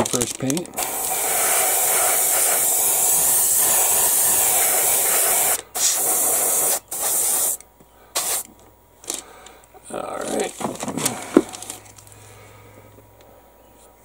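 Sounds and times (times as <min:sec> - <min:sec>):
airbrush spraying hiss: 0:00.8 - 0:08.5.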